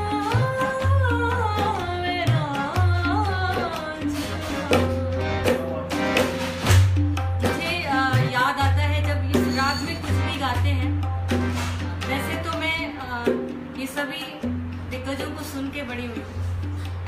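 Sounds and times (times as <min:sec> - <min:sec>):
woman singing: 0:00.0 - 0:05.3, 0:07.4 - 0:11.1, 0:12.0 - 0:15.9
tabla drum strokes: 0:00.0 - 0:17.0.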